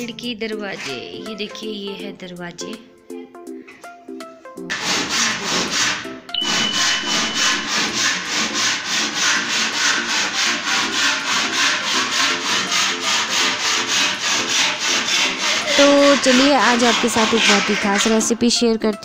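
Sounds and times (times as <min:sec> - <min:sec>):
hand tool rasping on wood: 0:04.7 - 0:18.5.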